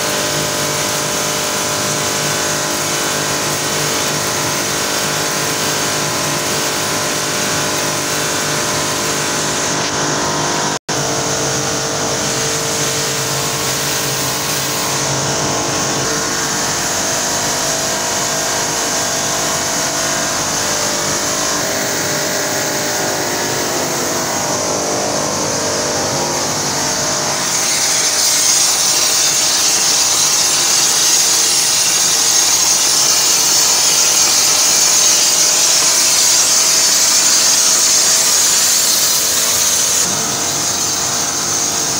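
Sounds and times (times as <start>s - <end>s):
factory machinery drone: 0.0s - 41.9s.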